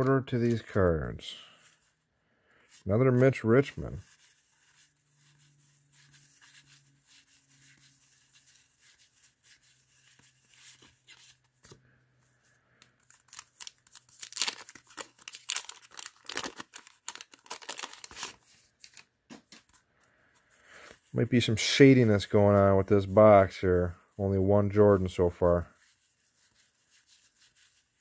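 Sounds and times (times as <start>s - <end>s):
wrapper tearing and crinkling: 13.0s - 19.1s.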